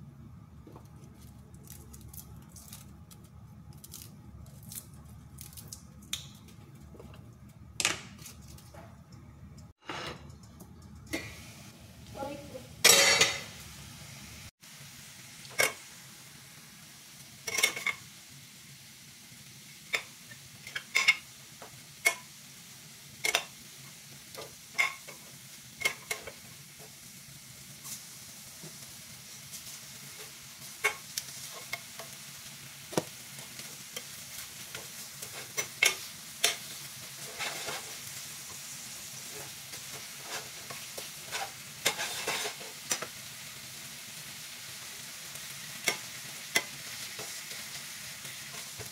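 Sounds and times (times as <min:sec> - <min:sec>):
metal utensils scraping pan: 0:09.8 - 0:10.4, 0:17.5 - 0:18.0, 0:35.2 - 0:38.0, 0:39.2 - 0:43.1
meat sizzling in frying pan: 0:11.2 - 0:48.9.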